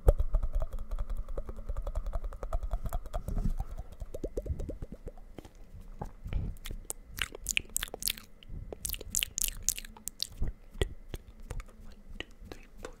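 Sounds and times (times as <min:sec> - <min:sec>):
wet mouth clicks and smacks: 0:06.6 - 0:13.0.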